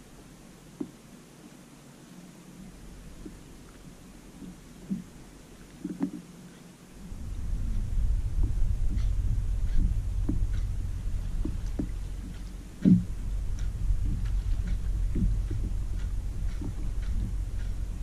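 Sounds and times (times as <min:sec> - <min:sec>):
water lapping against kayak: 0:00.0 - 0:18.0
wind rumbling on microphone: 0:06.9 - 0:18.0
light taps: 0:07.7 - 0:18.0.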